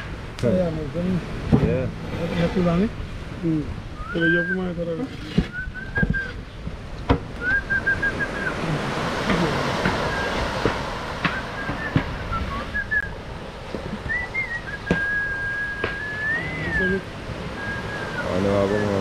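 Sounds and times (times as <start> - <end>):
short high whistled notes: 14.1 - 17.0.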